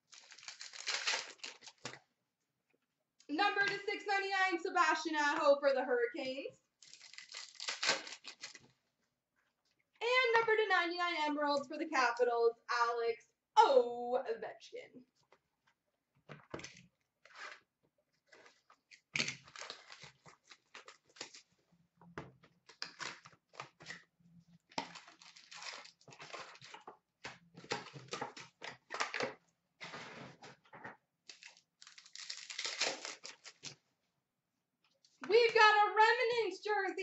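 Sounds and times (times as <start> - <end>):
cards rustling: 0.0 - 2.0, 6.8 - 8.8
pack wrappers crinkling and tearing: 0.0 - 2.0, 6.8 - 8.7, 18.3 - 21.5, 22.6 - 24.0, 24.7 - 26.8, 31.3 - 33.8.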